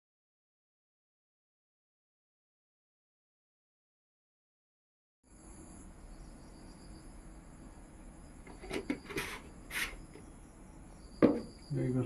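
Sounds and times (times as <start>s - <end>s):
insects chirping: 5.3s - 12.0s
sharp knock: 11.2s - 11.6s.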